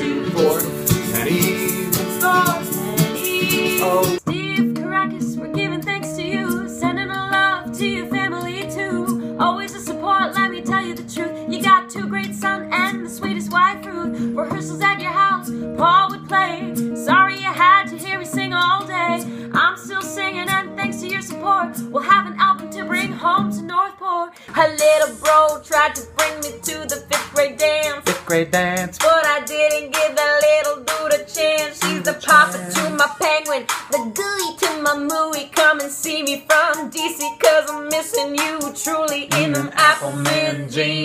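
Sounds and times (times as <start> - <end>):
woman and man singing: 0.0 - 4.2, 24.5 - 41.0
acoustic guitar strumming: 0.0 - 23.8, 24.5 - 41.0.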